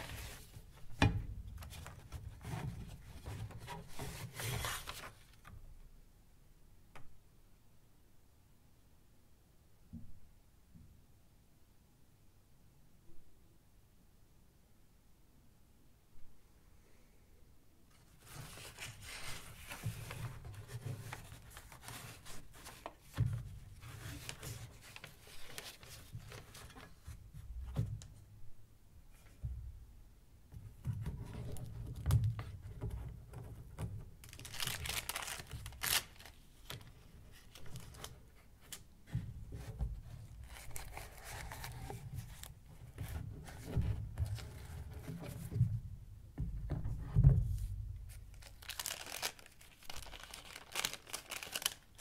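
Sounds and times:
paper rustling and crinkling: 0.0 - 0.8, 1.6 - 5.5, 18.0 - 27.2, 34.2 - 45.6, 48.1 - 52.0.

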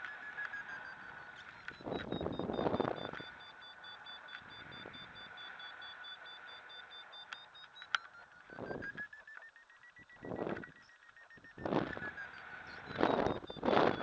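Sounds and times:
variometer beeping rapidly: 0.0 - 14.0
wind gusts on microphone: 1.8 - 3.2, 11.6 - 12.2, 12.8 - 14.0.

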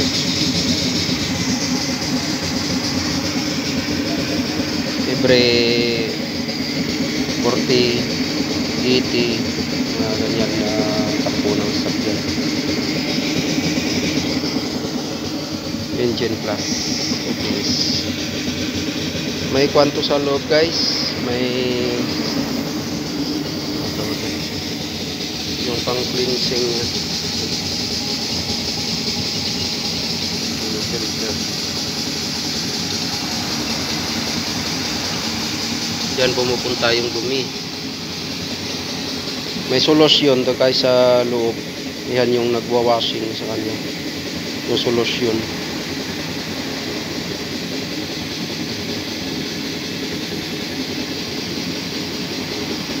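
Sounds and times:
machine humming and whirring: 0.0 - 53.0.

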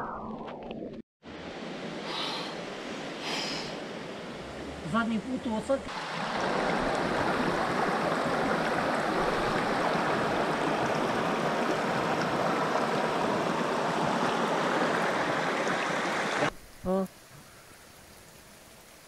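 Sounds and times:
fast-flowing water rushing: 3.1 - 16.5.

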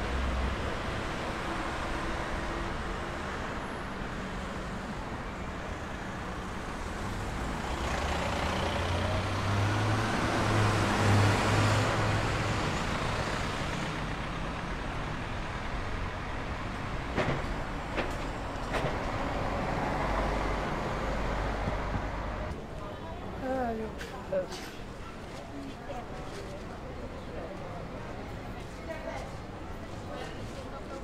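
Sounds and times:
street traffic: 0.0 - 31.0
vehicle passing close by: 7.6 - 13.6.

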